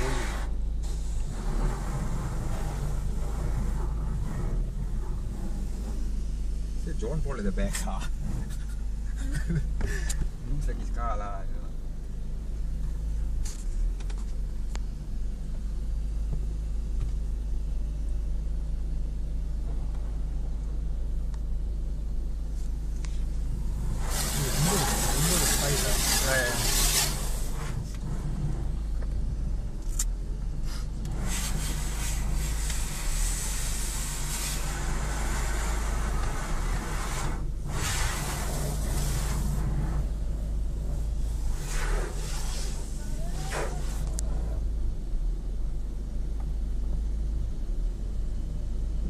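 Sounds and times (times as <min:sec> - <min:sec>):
water spraying on car: 0:00.0 - 0:09.8, 0:23.2 - 0:29.0, 0:30.6 - 0:44.5
car wash machinery rumbling: 0:00.0 - 0:49.0.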